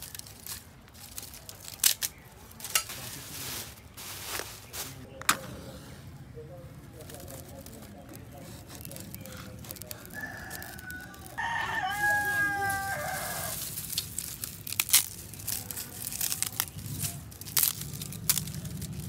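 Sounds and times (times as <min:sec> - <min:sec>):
rooster crowing: 0:09.9 - 0:13.7.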